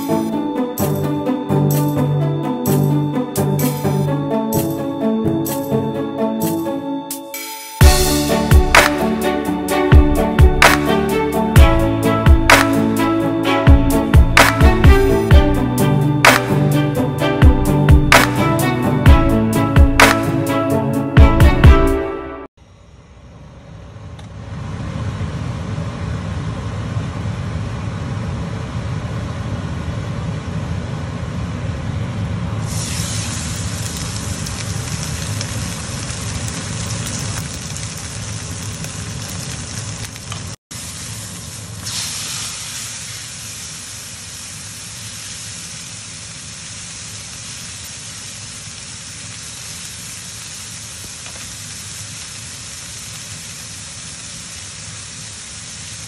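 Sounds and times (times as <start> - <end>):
steak sizzling in a frying pan: 32.7 - 56.0.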